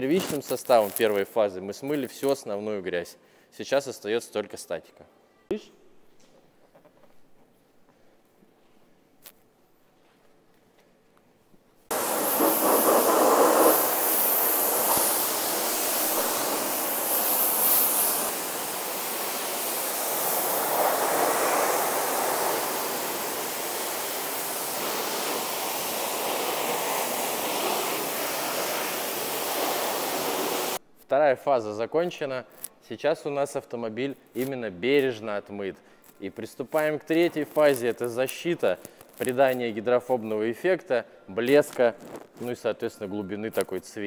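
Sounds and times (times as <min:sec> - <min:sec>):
pressure washer jet hissing: 0:11.9 - 0:30.8.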